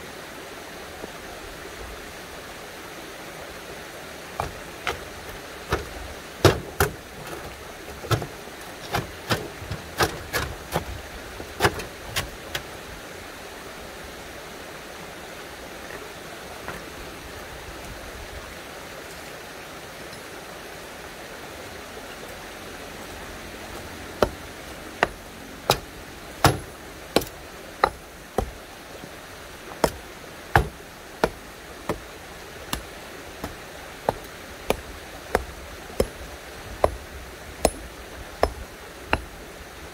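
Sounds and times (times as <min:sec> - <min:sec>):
hammer striking stones: 0:04.4 - 0:05.1, 0:05.7 - 0:10.9, 0:23.7 - 0:24.4, 0:25.0 - 0:28.6, 0:29.8 - 0:32.0, 0:32.7 - 0:36.2, 0:36.8 - 0:37.0, 0:37.6 - 0:39.3
stones knocking into place: 0:04.4 - 0:12.6, 0:25.0 - 0:28.6, 0:29.7 - 0:32.0.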